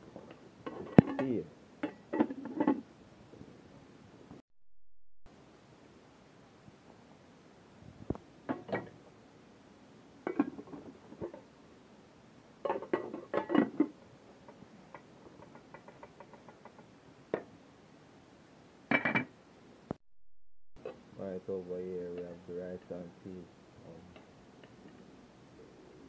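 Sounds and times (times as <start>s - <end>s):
pot lids clinking against pots: 12.6s - 13.9s, 18.9s - 19.3s.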